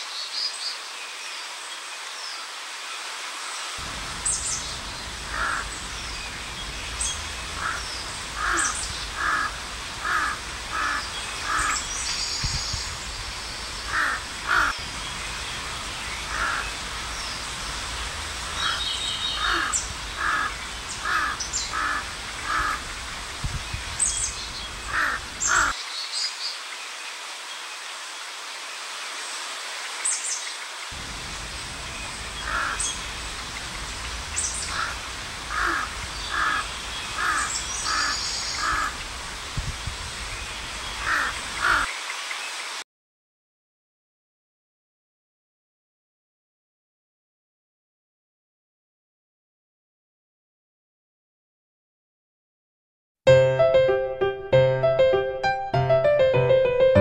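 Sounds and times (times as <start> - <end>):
small birds chirping faintly: 0.0 - 42.8
crow cawing: 5.3 - 5.7, 7.6 - 11.8, 13.9 - 14.8, 16.3 - 16.7, 18.5 - 22.8, 24.9 - 25.8, 32.4 - 32.9, 34.7 - 39.0, 41.0 - 41.9.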